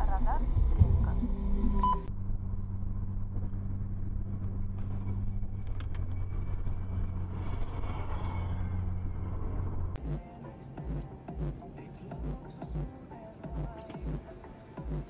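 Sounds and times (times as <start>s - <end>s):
road and tyre noise: 0.0s - 15.0s
car cruising on highway: 2.1s - 8.0s.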